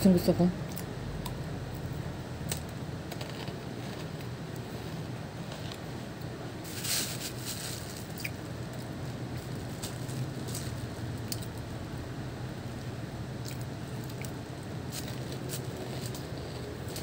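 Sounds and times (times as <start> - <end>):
steady low hum: 0.0 - 17.0
fruit pulp squishing and crackling: 0.6 - 17.0.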